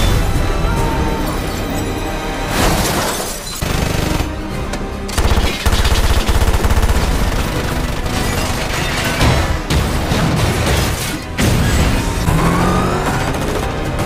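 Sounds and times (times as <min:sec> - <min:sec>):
action film score: 0:00.0 - 0:14.0
rapid automatic gunfire: 0:03.6 - 0:04.3, 0:05.1 - 0:08.8.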